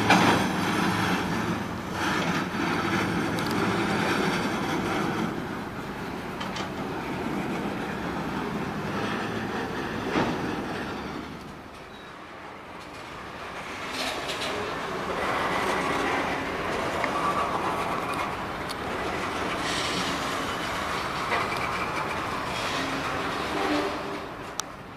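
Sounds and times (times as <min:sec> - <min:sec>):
train wheels clicking over rail joints: 0:00.0 - 0:24.9
faint wheel squeal: 0:11.8 - 0:12.3, 0:19.3 - 0:24.4.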